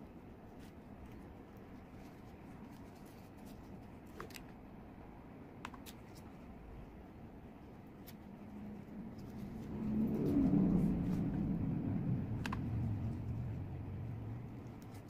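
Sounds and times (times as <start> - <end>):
handling ribbon petals: 0.4 - 4.6.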